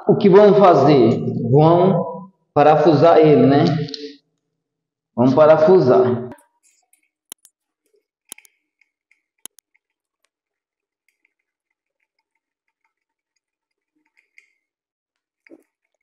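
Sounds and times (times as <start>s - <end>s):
screwdriver clicking on screw: 8.3s - 8.6s.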